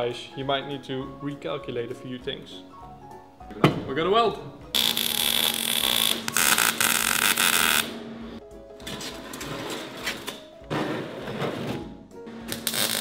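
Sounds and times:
arc welding crackling hiss: 4.8s - 7.8s, 12.5s - 13.0s.

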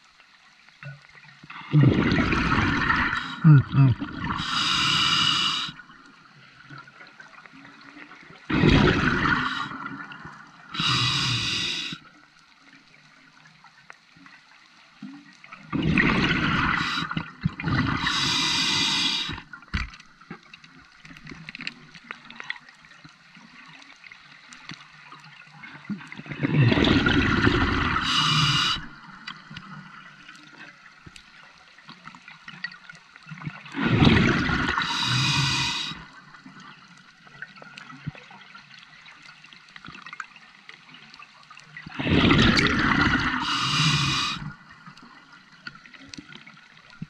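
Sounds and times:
exhaled bubbles gushing: 1.5s - 5.8s, 8.4s - 12.0s, 15.5s - 19.9s, 26.0s - 29.5s, 33.4s - 36.1s, 41.8s - 44.8s
regulator inhale hiss: 4.4s - 5.8s, 10.7s - 12.1s, 16.6s - 17.2s, 17.9s - 19.5s, 28.0s - 29.0s, 34.7s - 36.2s, 43.2s - 44.6s.

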